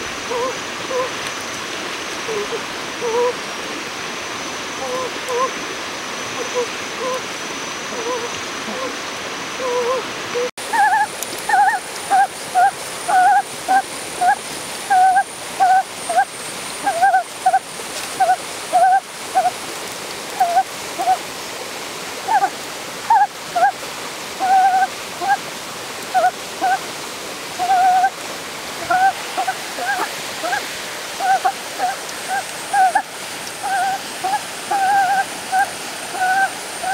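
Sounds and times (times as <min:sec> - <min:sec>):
steady hiss: 0:00.0 - 0:36.9
animal calling: 0:07.9 - 0:09.0, 0:09.6 - 0:19.6, 0:20.4 - 0:21.2, 0:22.2 - 0:23.8, 0:24.4 - 0:25.4, 0:26.1 - 0:26.8, 0:27.6 - 0:28.2, 0:28.8 - 0:36.9.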